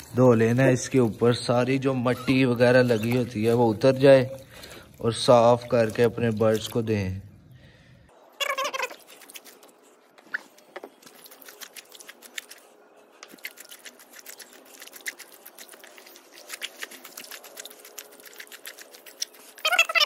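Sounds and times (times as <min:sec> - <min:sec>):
wet leaves crackling and rustling: 0:13.3 - 0:19.9.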